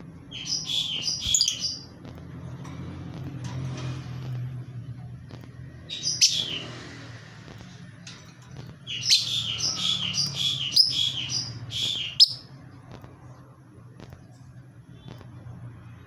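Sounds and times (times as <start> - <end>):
lovebird shrill chirps: 0.4 - 1.9, 8.9 - 12.5.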